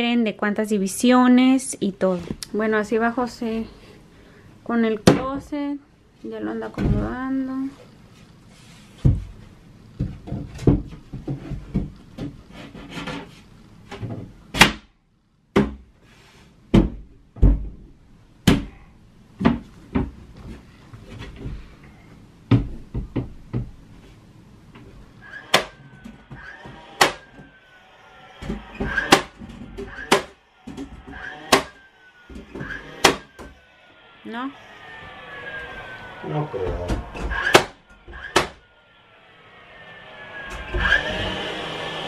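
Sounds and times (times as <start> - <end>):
wooden boards knocking: 28.4 - 31.8.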